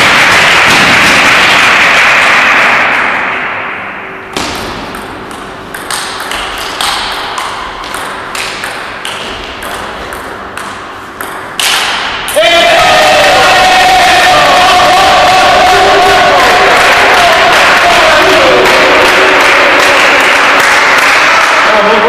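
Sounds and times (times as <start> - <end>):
table tennis ball clicking: 4.9 - 11.9.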